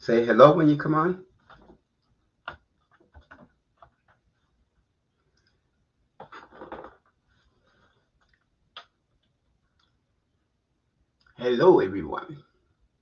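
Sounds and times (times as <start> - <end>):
soft rustle: 7.1 - 10.5.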